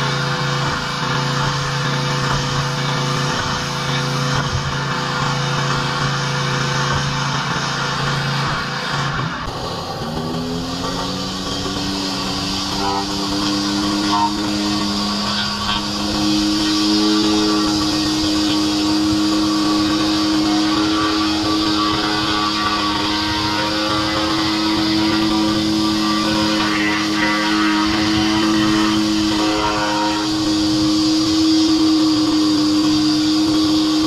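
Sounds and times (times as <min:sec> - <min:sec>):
high-pressure water spray hissing: 0:00.0 - 0:34.0
pressure washer motor drone: 0:00.0 - 0:34.0.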